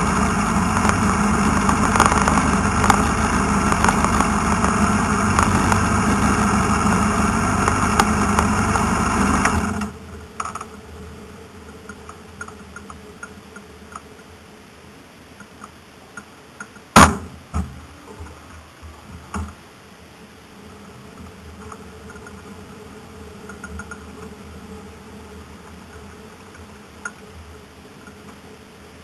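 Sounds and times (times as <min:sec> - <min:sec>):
faint steady hum: 0:00.0 - 0:29.0
knocks on car: 0:17.0 - 0:17.8
small clicks: 0:23.4 - 0:24.3.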